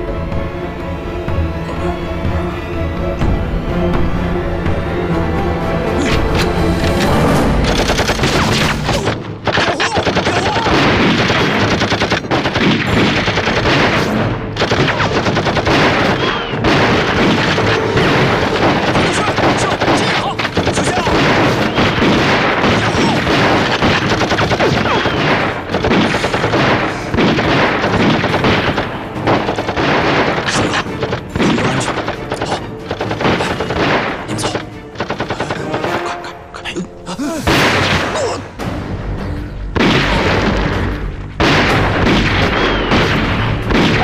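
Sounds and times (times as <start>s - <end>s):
rifle shots: 7.6s - 36.0s, 39.8s - 44.0s
machine gun firing bursts: 9.5s - 17.8s, 18.4s - 34.1s.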